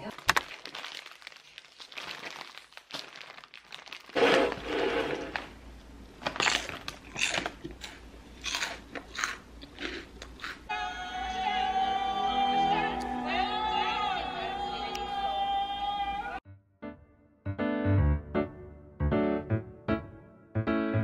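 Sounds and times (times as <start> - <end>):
chips crunching: 0.0 - 5.5, 6.2 - 10.7
plastic snack bag rustling: 0.0 - 5.6, 6.2 - 8.9
music: 10.7 - 21.0.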